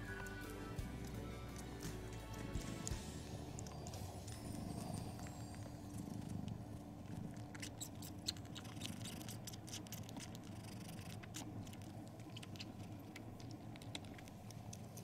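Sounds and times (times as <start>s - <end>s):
kitten suckling wet smacking: 7.5s - 15.0s.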